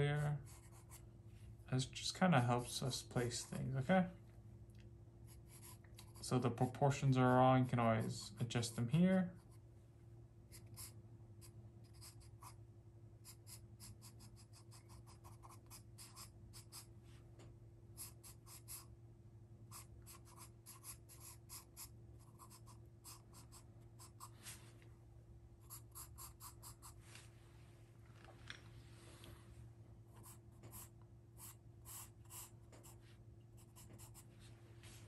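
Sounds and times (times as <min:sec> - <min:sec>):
pencil sketching on paper: 0:00.0 - 0:01.0, 0:13.2 - 0:16.9, 0:18.0 - 0:18.9, 0:19.7 - 0:24.4, 0:25.6 - 0:27.0.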